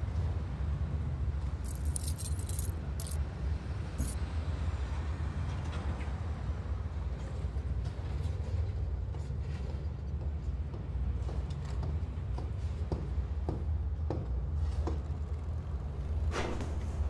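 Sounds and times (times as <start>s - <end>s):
metallic jingling: 1.6s - 3.2s.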